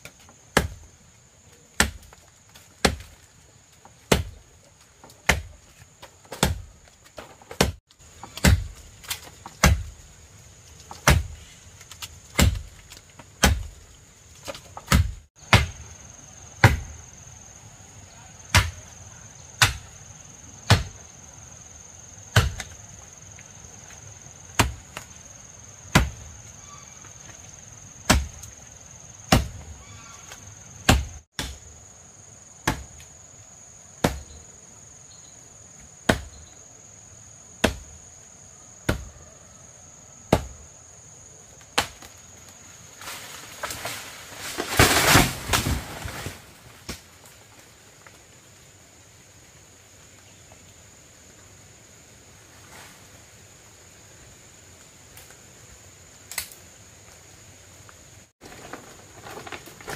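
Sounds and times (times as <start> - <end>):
axe chopping tree trunk: 0.0 - 0.9, 1.8 - 3.2, 4.0 - 4.4, 5.0 - 10.0, 10.9 - 11.4, 12.3 - 12.8, 13.4 - 13.8, 14.4 - 15.8, 16.6 - 17.0, 18.5 - 18.9, 19.6 - 19.9, 20.7 - 21.0, 22.3 - 22.8, 24.5 - 25.1, 25.9 - 26.2, 28.0 - 28.4, 29.3 - 29.7, 30.8 - 31.7, 32.6 - 33.0, 34.0 - 34.4, 36.0 - 36.4, 37.6 - 38.0, 38.8 - 39.1, 40.3 - 40.6, 41.7 - 42.2, 44.6 - 46.1
insects buzzing: 0.0 - 59.9.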